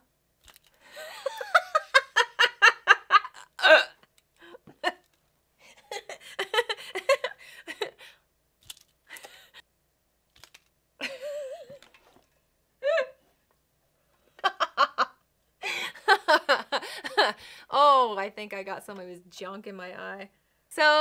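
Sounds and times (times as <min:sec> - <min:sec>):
woman laughing: 0:00.9 - 0:05.0, 0:05.6 - 0:08.0, 0:11.0 - 0:11.8, 0:12.8 - 0:13.2, 0:14.4 - 0:17.4.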